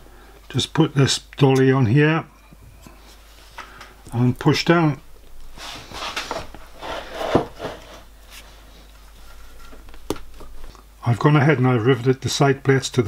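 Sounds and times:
rubbing and scuffing on metal: 5.6 - 9.8.

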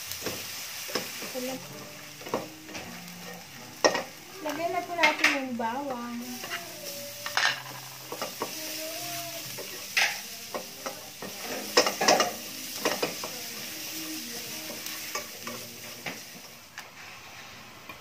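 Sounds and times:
garlic sizzling in a frying pan: 0.0 - 18.0
utensil scraping a pan: 2.2 - 16.2.

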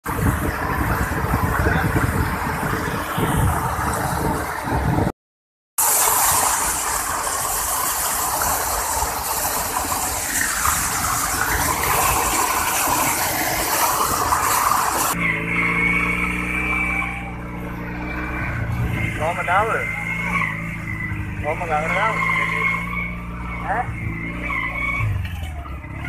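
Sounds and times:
water rushing and splashing: 0.0 - 5.1, 5.8 - 24.4.

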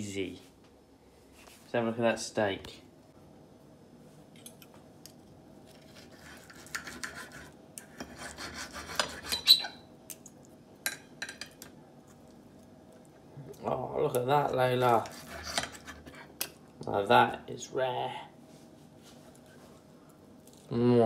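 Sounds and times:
knife and fork scraping a plate: 5.7 - 9.8, 14.9 - 16.3.

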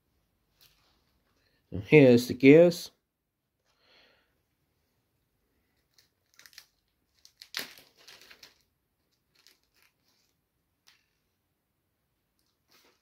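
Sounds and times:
plastic bag crinkling: 5.7 - 11.0
small gear dropping on wood: 7.2 - 8.7.

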